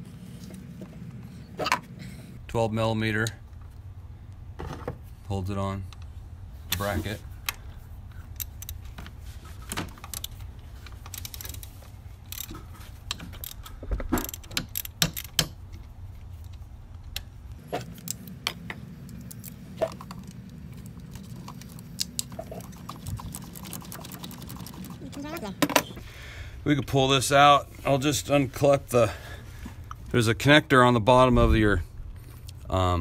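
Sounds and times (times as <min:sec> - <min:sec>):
low steady hum: 0:00.0 - 0:33.0
ratchet metal clicks: 0:11.0 - 0:15.6.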